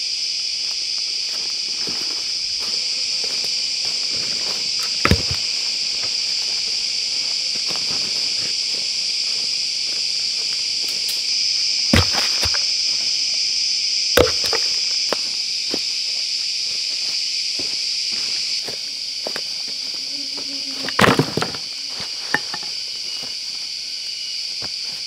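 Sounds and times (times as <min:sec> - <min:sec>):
insect chorus: 0:00.0 - 0:25.0
footsteps on dry leaves: 0:01.3 - 0:10.9
wood knocking on wood: 0:05.0 - 0:05.4.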